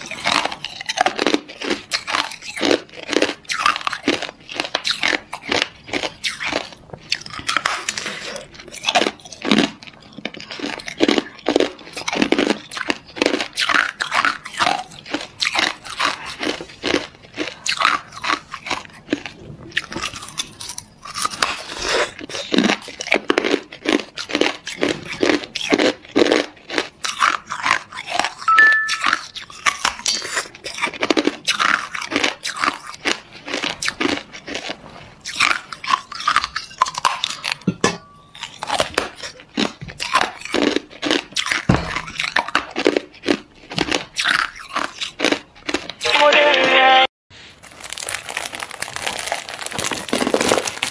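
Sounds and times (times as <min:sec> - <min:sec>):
ice crunching between teeth: 0:00.0 - 0:37.7, 0:38.4 - 0:46.1, 0:47.5 - 0:50.9.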